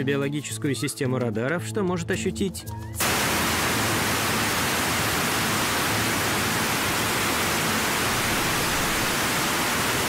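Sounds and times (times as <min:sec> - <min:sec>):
loud steady static hiss: 0:03.0 - 0:10.0.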